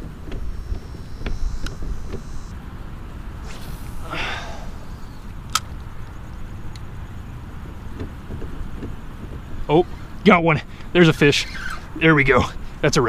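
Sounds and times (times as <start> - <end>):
breathy sigh: 3.5 - 5.2.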